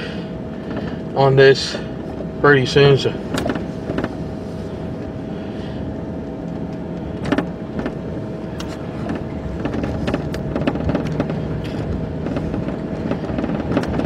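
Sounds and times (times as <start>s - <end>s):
car engine and tyre noise: 0.0s - 14.0s
short knocks and clicks: 9.0s - 14.0s.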